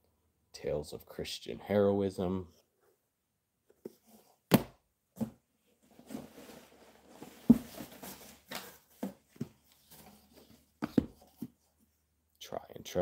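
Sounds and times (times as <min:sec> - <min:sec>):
books rustling and scraping in box: 0:05.8 - 0:11.7
books knocking together: 0:07.2 - 0:09.6, 0:10.8 - 0:11.6.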